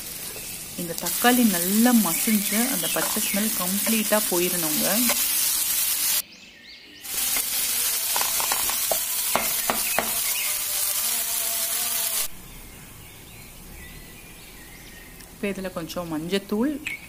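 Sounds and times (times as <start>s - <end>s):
onions and tomatoes sizzling: 0.0s - 6.2s, 7.0s - 12.7s.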